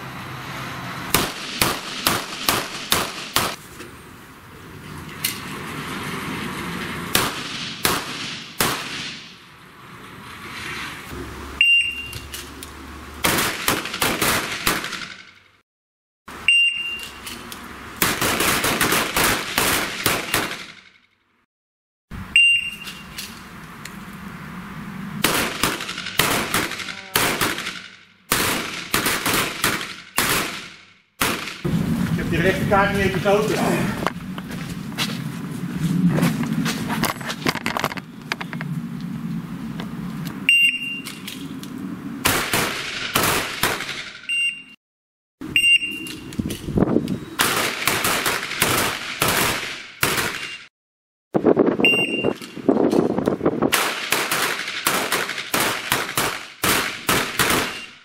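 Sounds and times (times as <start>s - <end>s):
pistol shots: 1.1s - 3.6s, 7.2s - 9.3s, 13.2s - 15.3s, 18.0s - 20.9s, 25.2s - 31.7s, 42.2s - 44.1s, 47.4s - 50.6s, 53.7s - 57.9s
short high beep: 11.6s - 12.2s, 16.5s - 17.2s, 22.4s - 23.1s, 40.5s - 41.1s, 44.3s - 44.8s, 45.6s - 46.2s, 51.8s - 52.4s.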